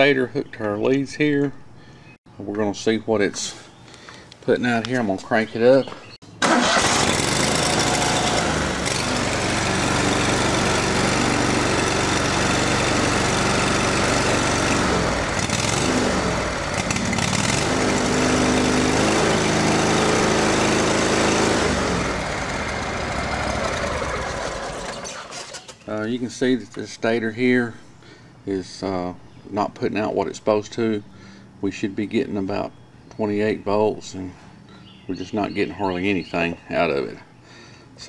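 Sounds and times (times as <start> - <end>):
mower engine starting and running: 6.4 - 25.9.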